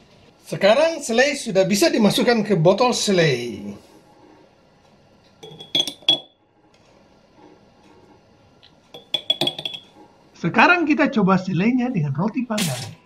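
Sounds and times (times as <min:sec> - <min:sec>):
metal spoon clinking on glass jar: 0:05.4 - 0:06.3, 0:09.0 - 0:09.9.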